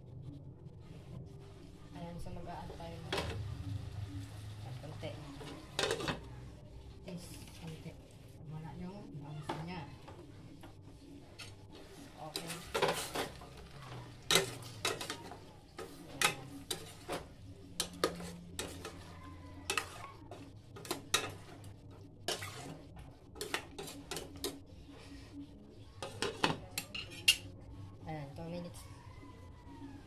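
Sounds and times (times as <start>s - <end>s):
metal ladle scraping pot: 5.4s - 6.2s, 11.3s - 24.6s, 26.0s - 27.5s.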